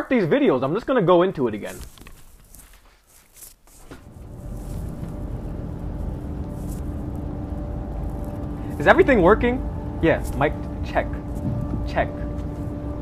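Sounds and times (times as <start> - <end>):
headphones being handled: 1.6 - 5.2
low hum: 3.9 - 13.0
low car-like rumble: 4.0 - 13.0.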